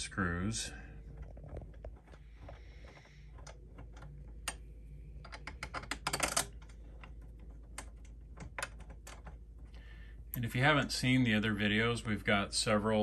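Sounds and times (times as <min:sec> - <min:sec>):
metal screws clicking and tapping: 0:05.2 - 0:09.4.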